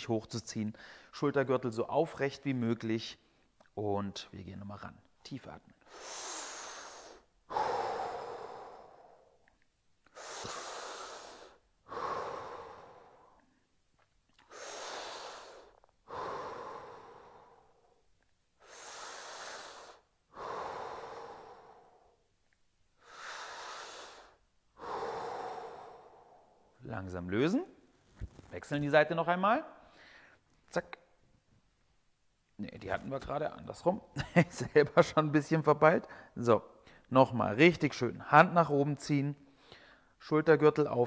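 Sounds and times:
man breathing deeply: 5.8s - 13.7s, 14.4s - 22.3s, 23.0s - 26.8s, 29.8s - 30.4s, 39.5s - 40.2s.

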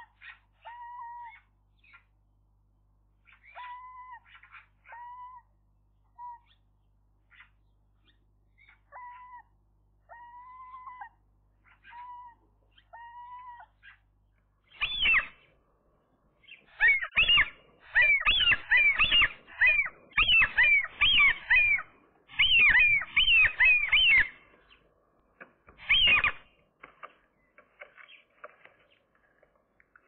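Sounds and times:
gulls calling: 14.7s - 15.5s, 16.4s - 30.0s.

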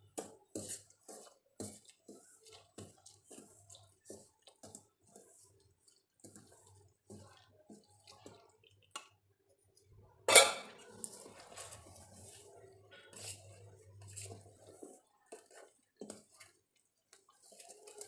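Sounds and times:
steel spoon scraping steel bowl: 0.0s - 5.6s, 10.3s - 16.6s, 17.2s - 18.0s.

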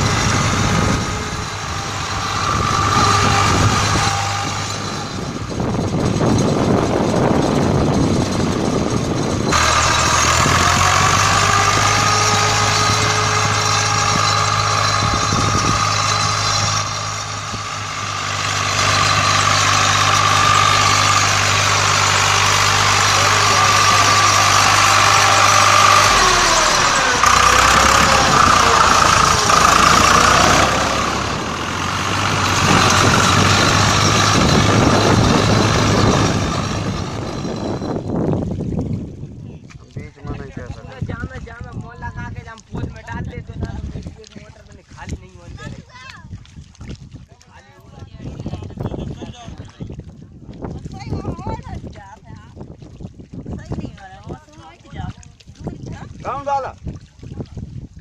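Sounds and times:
tractor diesel engine running: 0.0s - 38.8s.

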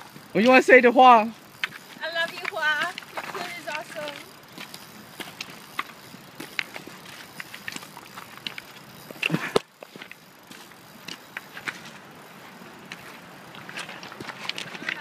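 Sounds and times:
footsteps crunching on cobbles: 0.0s - 15.0s
stones clicking and clacking: 1.4s - 11.9s.

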